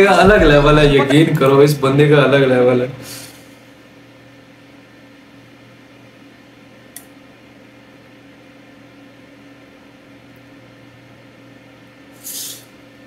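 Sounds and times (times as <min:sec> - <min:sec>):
steady background hum: 0:00.0 - 0:13.0
brief high hiss: 0:12.2 - 0:12.7
hiss: 0:12.2 - 0:12.7.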